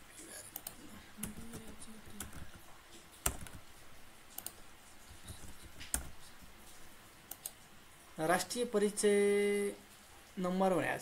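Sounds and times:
typing on computer keyboard: 0.5s - 6.2s.

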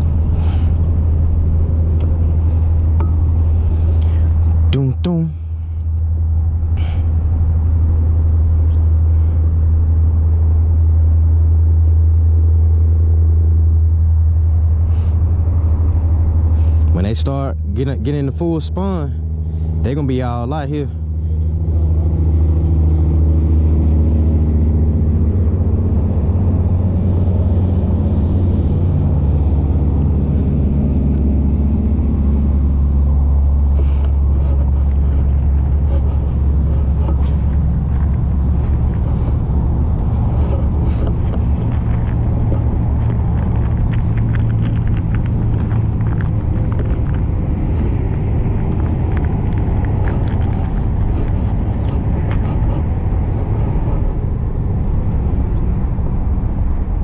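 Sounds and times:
engine hum: 0.0s - 57.0s
road traffic rumble: 0.0s - 57.0s
clicks and rustles near microphone: 30.0s - 33.1s, 33.7s - 54.2s.

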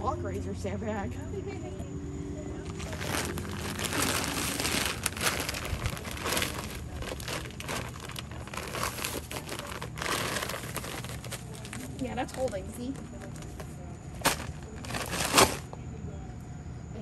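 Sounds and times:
plastic bag crinkling: 2.7s - 15.7s.

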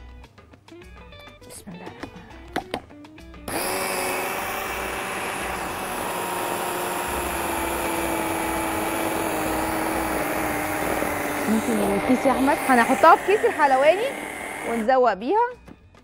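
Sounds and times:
food chopper motor whining: 3.5s - 15.0s.

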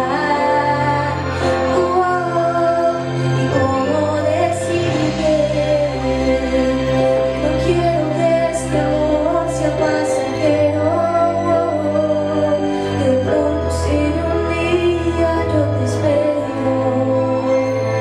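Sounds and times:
instrumental accompaniment: 0.0s - 18.0s
woman singing into a microphone: 0.0s - 18.0s.

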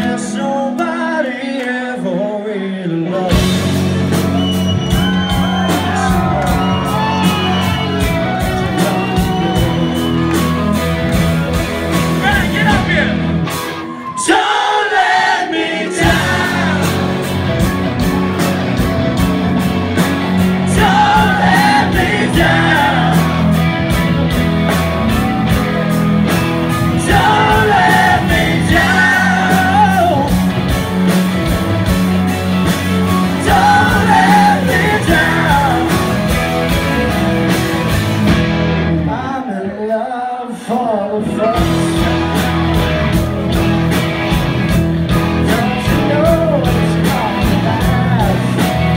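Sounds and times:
rock band playing loudly: 3.0s - 48.9s
driving drums: 3.3s - 39.3s, 41.2s - 48.9s
voices singing together: 13.9s - 17.4s, 20.4s - 23.8s, 26.7s - 30.4s, 33.1s - 36.5s.

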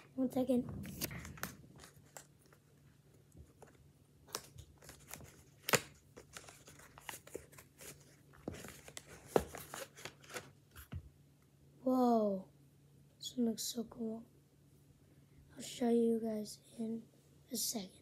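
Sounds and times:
cardboard tearing and rustling: 3.4s - 10.5s.

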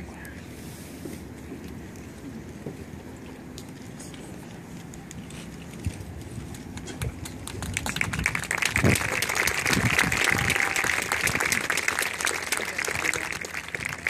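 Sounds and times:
crowd applauding and cheering: 7.0s - 14.0s.

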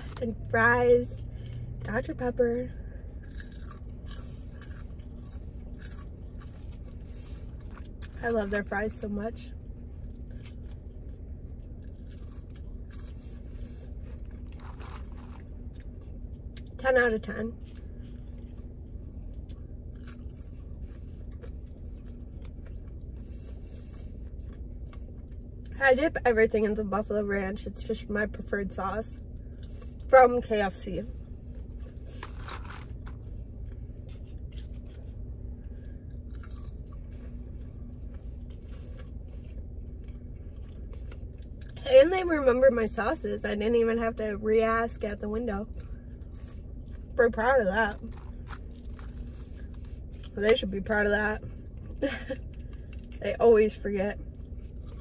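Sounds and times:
low hum: 0.0s - 55.0s
chewing fries: 3.1s - 9.0s, 9.7s - 25.8s, 31.1s - 41.8s, 45.7s - 53.3s, 54.2s - 55.0s
short crunches: 3.2s - 8.2s, 11.6s - 16.8s, 31.6s - 41.8s.

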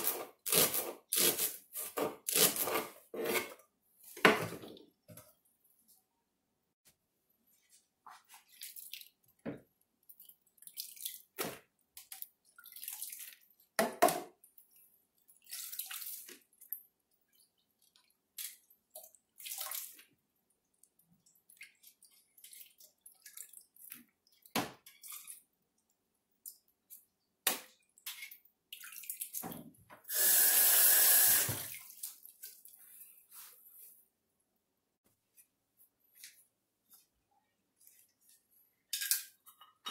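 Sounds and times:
water splashing and dripping: 8.1s - 29.6s, 31.4s - 32.8s.

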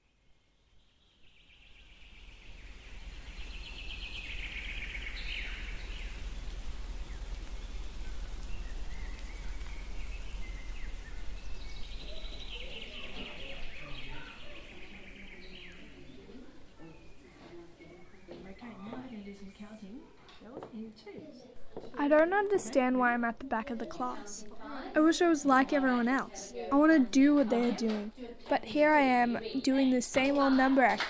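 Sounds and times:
birds chattering: 1.3s - 20.4s, 21.5s - 31.0s
low steady rumble: 2.5s - 13.5s.

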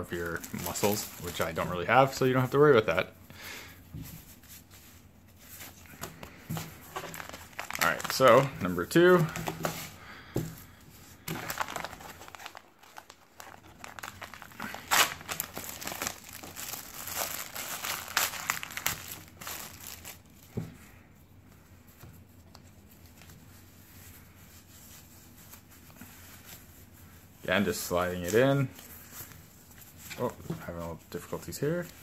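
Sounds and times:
plastic film wrapper crinkling: 0.0s - 2.5s, 6.5s - 9.8s, 11.2s - 20.4s.

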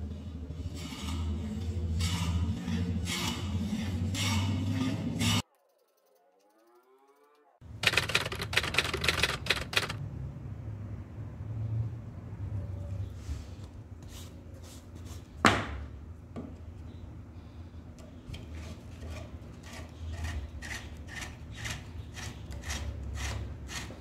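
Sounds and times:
hand reamer clicking and scraping in wood: 7.8s - 10.0s.

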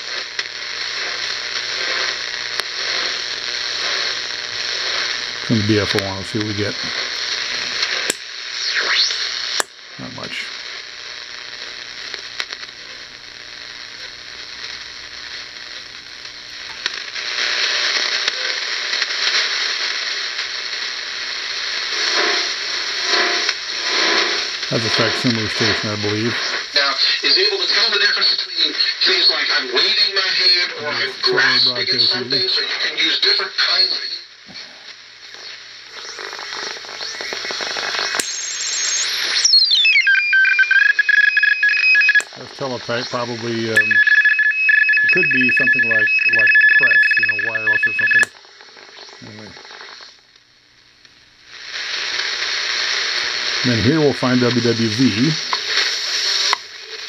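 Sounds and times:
radio static being tuned: 0.0s - 57.0s
pulsing radio tone signal: 3.8s - 9.4s, 22.0s - 34.8s, 35.4s - 48.3s, 53.6s - 57.0s
descending radio whistle: 8.6s - 9.3s, 35.4s - 42.2s, 43.7s - 48.3s.

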